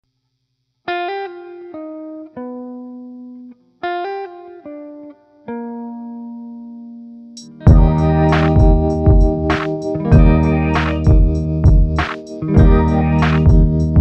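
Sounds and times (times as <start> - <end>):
slow plucked melody: 5.6 - 14.0.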